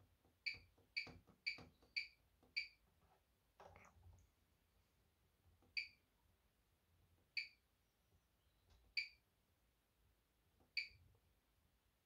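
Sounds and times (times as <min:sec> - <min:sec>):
washing machine beeps: 0:00.4 - 0:02.8, 0:05.8 - 0:06.0, 0:07.4 - 0:07.6, 0:09.0 - 0:09.2, 0:10.8 - 0:11.0.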